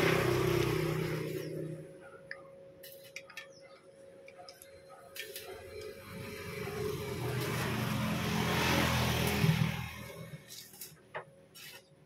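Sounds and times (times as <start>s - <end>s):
vehicle engine passing by: 0.0s - 1.9s, 5.9s - 10.5s.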